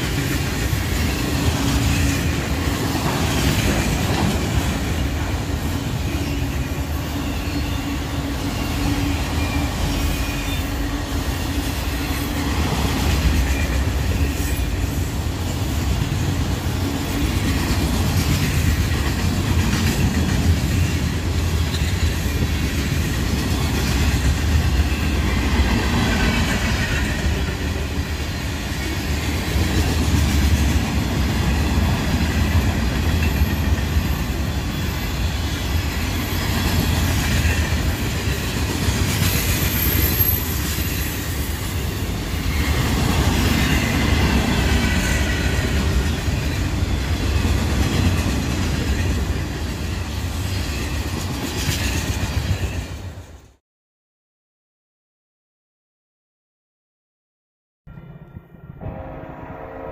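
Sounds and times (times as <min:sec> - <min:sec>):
freight train rumbling past: 0:00.0 - 0:53.6, 0:57.9 - 0:59.9
high-pitched wheel squeal: 0:06.0 - 0:11.1.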